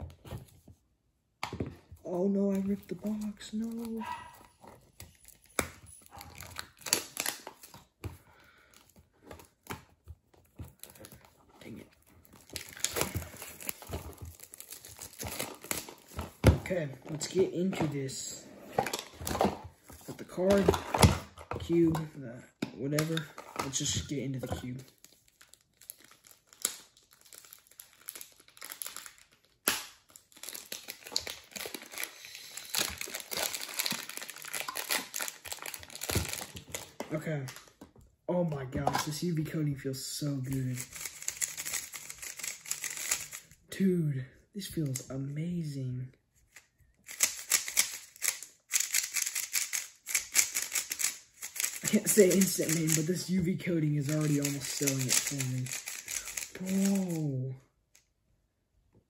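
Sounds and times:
cardboard box crinkling and tearing: 12.2 - 16.2, 25.0 - 37.0.

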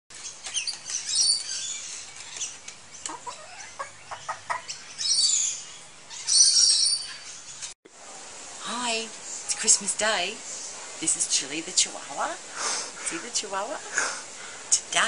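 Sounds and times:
birds chirping: 0.1 - 7.8
lower falling bird calls: 0.1 - 7.8.

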